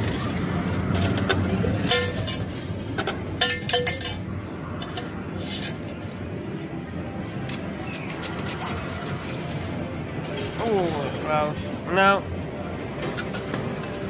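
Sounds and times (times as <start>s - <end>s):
arcade background din: 0.0s - 14.0s.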